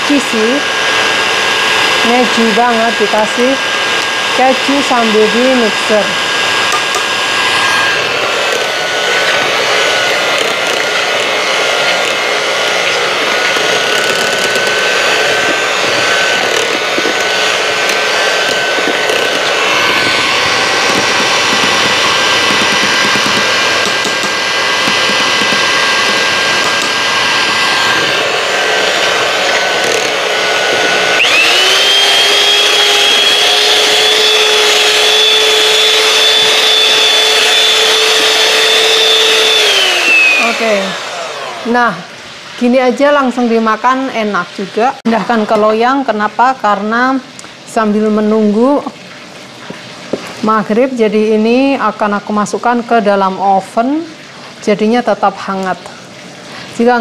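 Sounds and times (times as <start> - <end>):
hand mixer motor whine: 0.0 - 49.0, 49.7 - 57.0
beaters scraping pot: 1.5 - 41.8.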